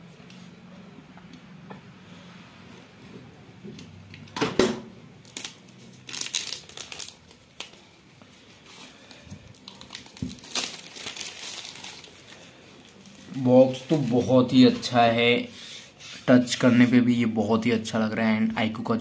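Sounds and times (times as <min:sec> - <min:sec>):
plastic wrap crinkling and tearing: 0:05.2 - 0:08.0, 0:08.7 - 0:14.9.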